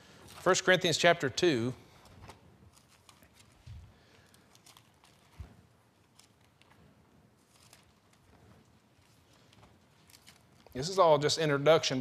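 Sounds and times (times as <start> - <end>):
book pages rustling: 2.0 - 10.9.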